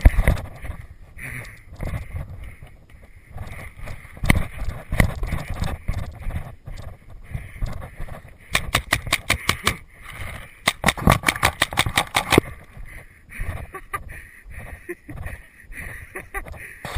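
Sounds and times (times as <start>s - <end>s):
running footsteps on dirt: 0.0s - 16.9s
paintball marker firing: 8.5s - 9.8s, 10.6s - 12.5s.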